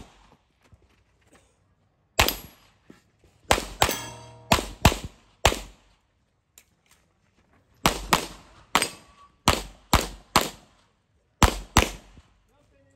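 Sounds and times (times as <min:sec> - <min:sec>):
pistol shots: 0:03.5 - 0:05.7.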